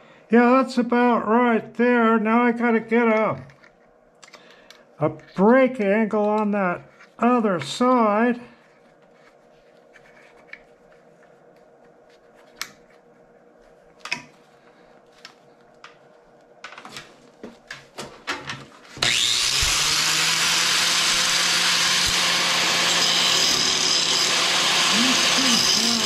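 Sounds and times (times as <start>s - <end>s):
angle grinder grinding steel: 19.0s - 26.0s.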